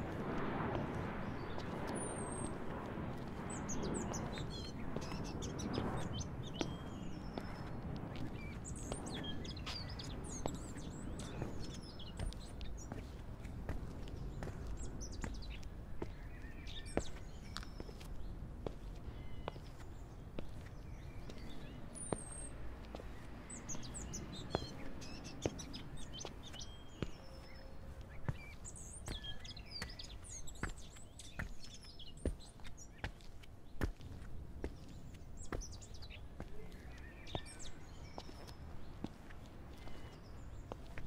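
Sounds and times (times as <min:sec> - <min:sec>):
small birds chirping: 0:00.6 - 0:41.0.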